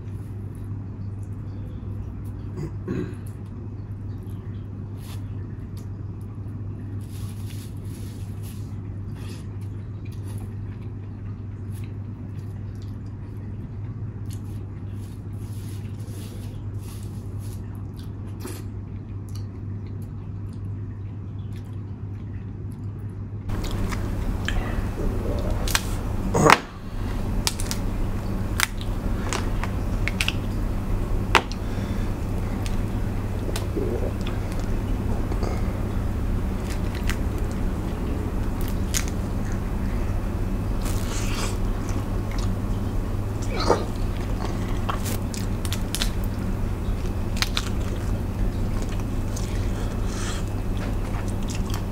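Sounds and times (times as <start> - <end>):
steady low hum: 0.0 - 51.9
chewing: 14.2 - 51.9
crab shells being cracked: 27.4 - 27.9.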